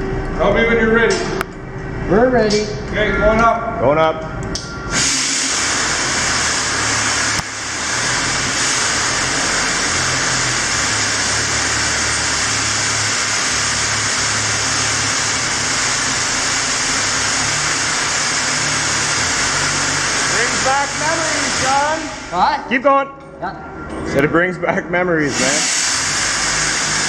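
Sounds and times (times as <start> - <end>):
raise climber drive hissing: 4.9 - 22.4, 25.3 - 27.0.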